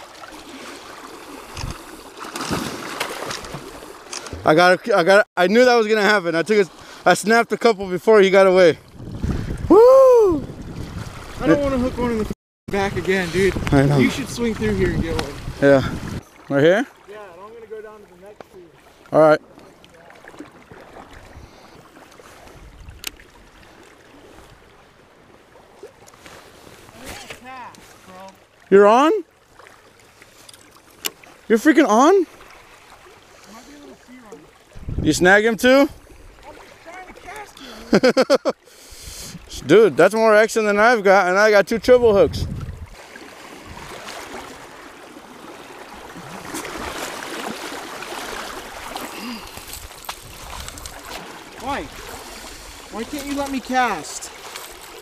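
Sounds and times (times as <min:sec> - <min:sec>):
fish thrashing and splashing: 0:00.0 - 0:04.5, 0:42.7 - 0:55.0
wind on microphone: 0:08.8 - 0:16.3, 0:22.4 - 0:23.2, 0:34.8 - 0:35.3, 0:41.8 - 0:43.0, 0:43.6 - 0:44.1
river water rushing: 0:42.9 - 0:55.0.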